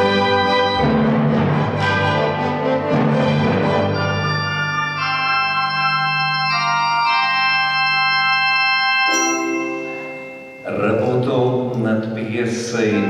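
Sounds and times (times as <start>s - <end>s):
organ playing sustained chords: 0.0s - 13.0s.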